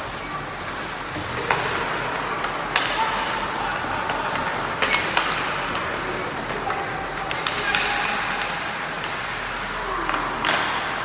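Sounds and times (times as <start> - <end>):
distant voices: 0.0 - 11.0
hockey sticks and puck clacking: 0.0 - 11.0.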